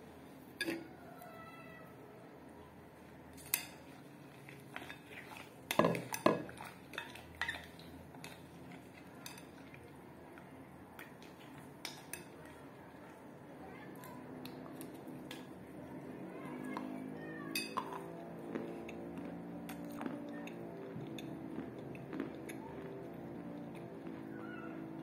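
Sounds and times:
metal spoon clinking glass bowl: 0:17.5 - 0:18.1.

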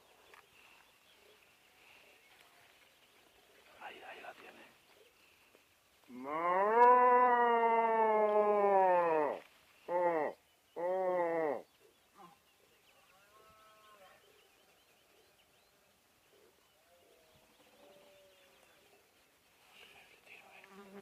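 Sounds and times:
deer stag roaring: 0:06.1 - 0:11.6.

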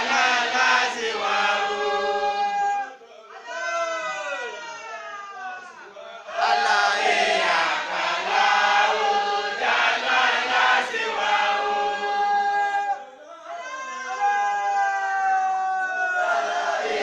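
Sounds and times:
group chanting in unison: 0:00.0 - 0:03.5, 0:05.8 - 0:13.9, 0:15.9 - 0:17.0.

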